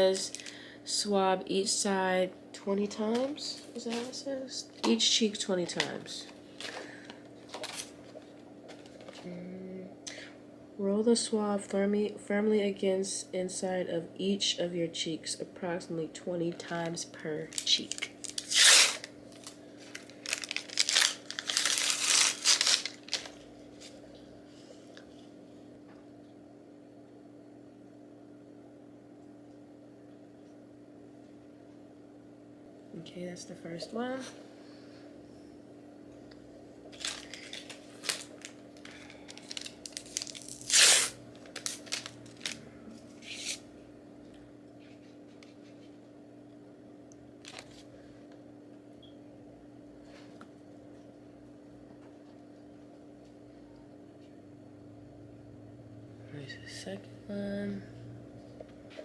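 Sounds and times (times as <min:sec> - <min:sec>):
faint steady hum: 0:00.0 - 0:59.0
wrapper crinkling and rustling: 0:17.4 - 0:24.0, 0:36.9 - 0:42.6, 0:47.4 - 0:47.9.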